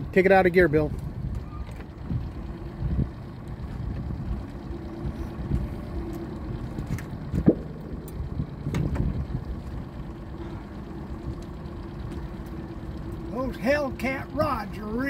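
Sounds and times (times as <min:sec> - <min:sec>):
boat motor idling: 0:00.0 - 0:15.0
knocks on boat: 0:07.3 - 0:07.8.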